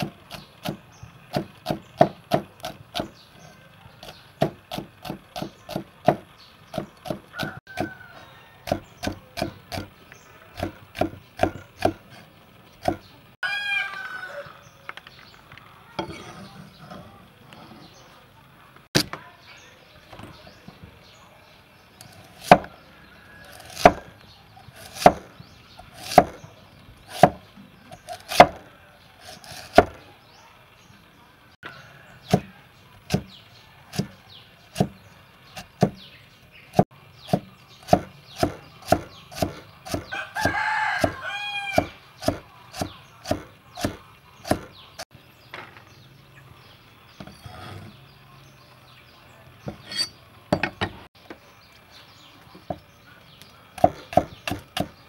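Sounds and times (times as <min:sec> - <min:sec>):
cleaver chopping on wooden block: 0:00.0 - 0:03.1, 0:04.0 - 0:08.0, 0:08.6 - 0:09.9, 0:10.6 - 0:12.0, 0:12.8 - 0:13.1, 0:22.2 - 0:22.7, 0:23.6 - 0:24.1, 0:24.8 - 0:25.3, 0:25.9 - 0:26.5, 0:27.1 - 0:27.4, 0:28.0 - 0:28.6, 0:29.4 - 0:30.0, 0:32.2 - 0:32.5, 0:33.1 - 0:34.2, 0:34.8 - 0:35.0, 0:35.6 - 0:36.1, 0:37.2 - 0:44.8, 0:53.8 - 0:55.0
rooster crowing: 0:07.3 - 0:08.8, 0:13.4 - 0:14.7, 0:40.1 - 0:42.0.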